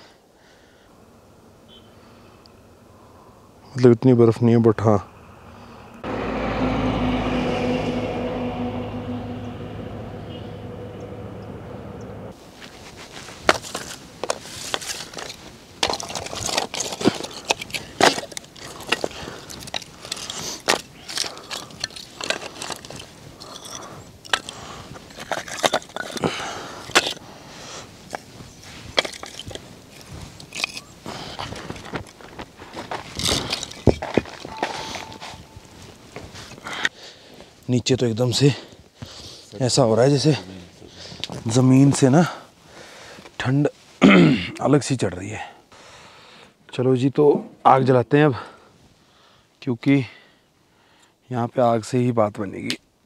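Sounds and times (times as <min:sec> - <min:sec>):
firewood sticks clattering: 0:12.6 - 0:27.2, 0:28.0 - 0:36.6.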